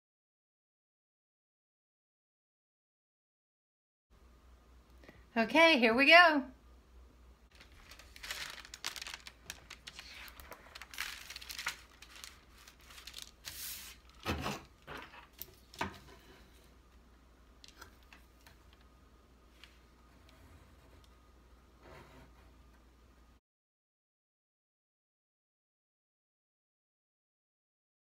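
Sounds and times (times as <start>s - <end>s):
paper rustling and crinkling: 7.5s - 16.3s.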